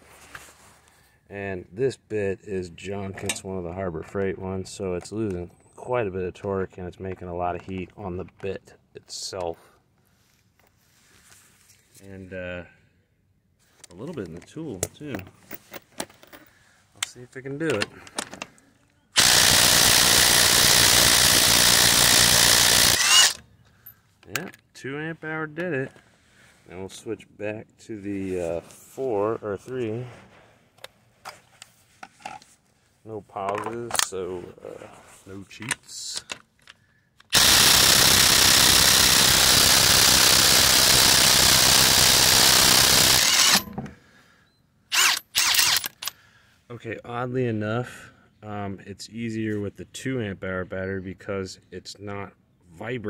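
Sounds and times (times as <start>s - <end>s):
impact driver hammering: 37.4s - 43.9s.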